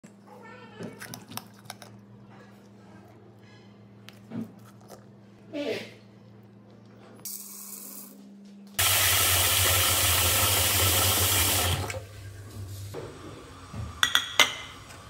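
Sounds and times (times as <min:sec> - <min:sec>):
tap water running into pot: 0:08.8 - 0:12.0.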